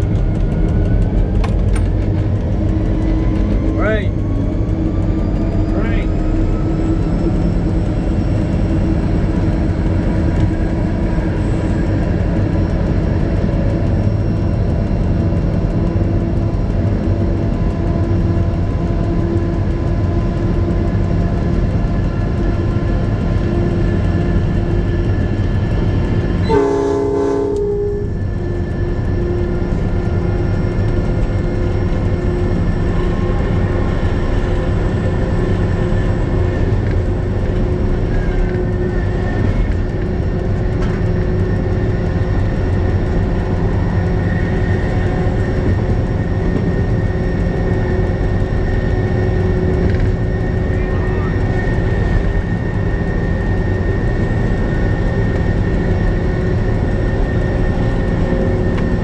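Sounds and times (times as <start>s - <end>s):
diesel locomotive engine droning: 0.0s - 59.0s
locomotive horn blast: 26.4s - 28.2s.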